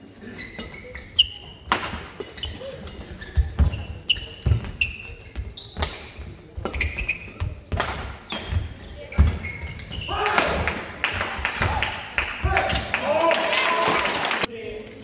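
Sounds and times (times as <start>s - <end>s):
shoe squeaks on court: 0.3s - 7.6s, 8.3s - 10.1s
racket hitting shuttlecock: 1.6s - 3.0s, 7.7s - 10.8s.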